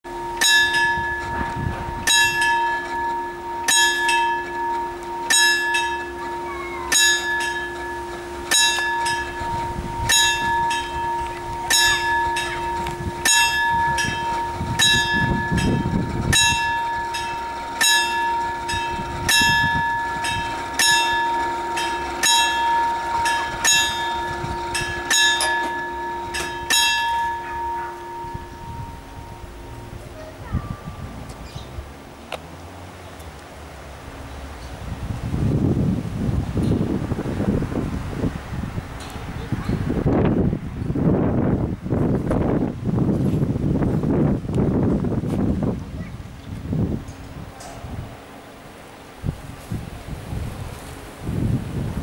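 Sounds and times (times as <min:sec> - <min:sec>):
level-crossing warning bell: 0:00.1 - 0:32.2, 0:35.6 - 0:52.0
steady high tone: 0:00.1 - 0:32.2.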